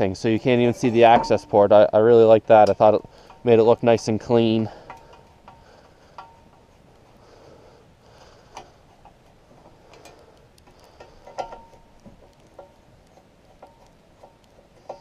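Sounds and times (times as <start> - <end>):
metal parts clicking and tapping: 9.9 - 12.8.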